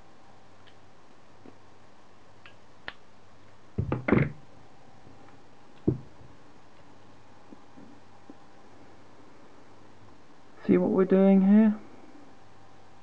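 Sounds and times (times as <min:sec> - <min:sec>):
knocks on a wooden desk: 0:03.8 - 0:04.4, 0:05.9 - 0:06.1.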